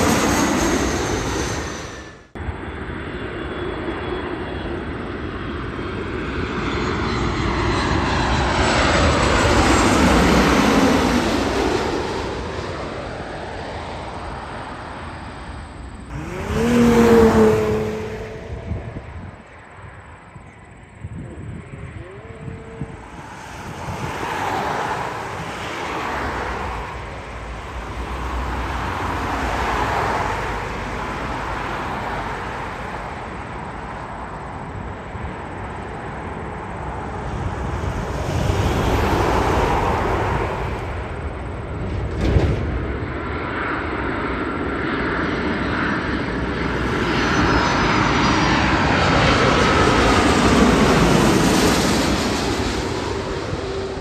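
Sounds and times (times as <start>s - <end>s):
jet engines roaring: 0.0s - 54.0s
whining tone falling in pitch: 16.0s - 19.5s.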